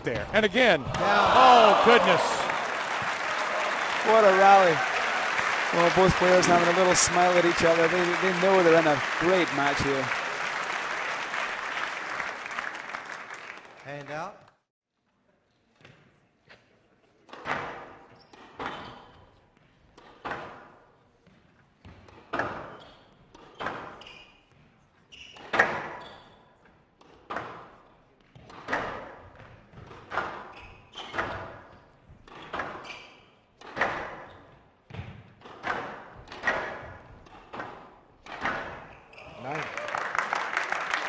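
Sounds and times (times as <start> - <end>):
squash ball hitting rackets and walls: 19.9 - 20.8, 21.8 - 26.1, 27.0 - 39.0.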